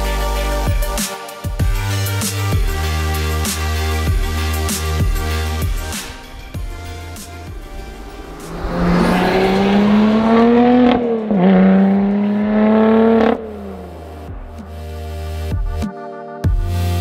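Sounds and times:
car engine accelerating hard: 5.2 - 15.4.

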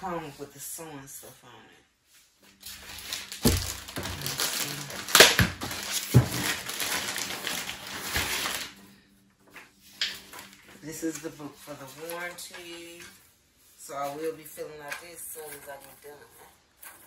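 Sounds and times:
packaging crinkling and rustling: 2.5 - 8.8.

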